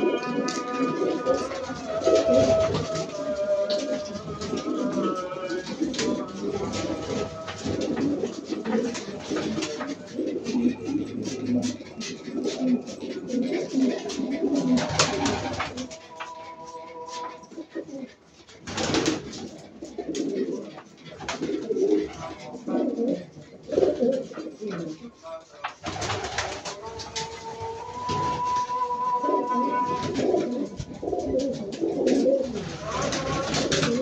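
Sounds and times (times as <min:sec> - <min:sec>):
pigeon wings flapping: 0:00.0 - 0:17.4, 0:18.6 - 0:20.2, 0:21.1 - 0:22.4, 0:25.6 - 0:27.4, 0:29.9 - 0:34.0
pigeon clicks: 0:00.0 - 0:17.9, 0:30.0 - 0:34.0
pigeons cooing: 0:00.0 - 0:34.0.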